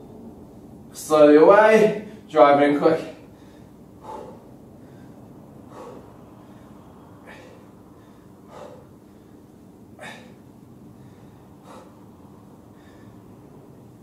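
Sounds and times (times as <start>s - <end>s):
faint steady hum: 0.0s - 14.0s
man breathing sharply: 3.2s - 14.0s.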